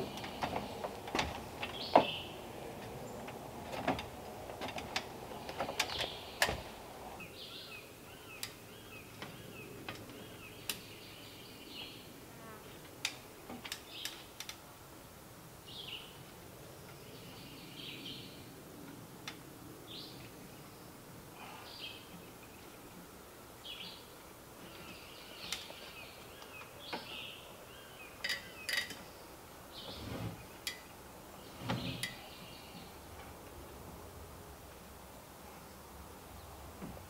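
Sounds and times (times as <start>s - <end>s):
birds chirping: 0.0s - 12.1s, 19.8s - 33.2s.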